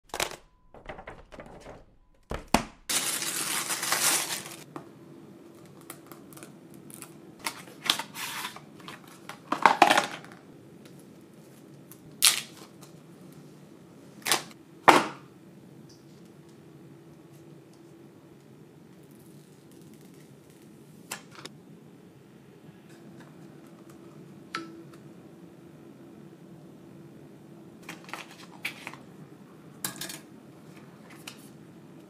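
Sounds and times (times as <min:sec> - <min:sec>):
plastic bag rustling and crinkling: 0:02.9 - 0:04.7.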